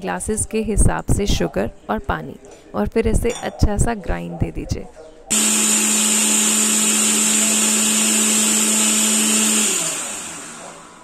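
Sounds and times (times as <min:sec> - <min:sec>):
mixer grinder running: 0:05.3 - 0:11.0.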